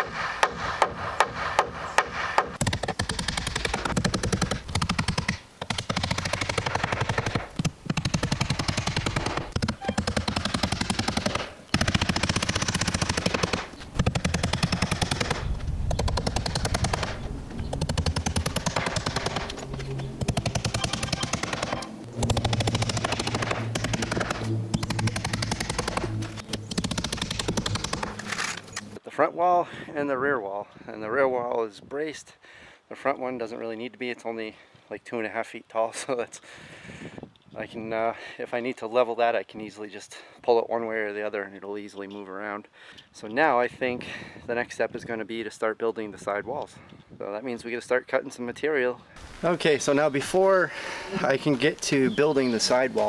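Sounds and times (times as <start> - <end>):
hammer driving nails into wood: 0.0 - 19.6, 20.2 - 28.5.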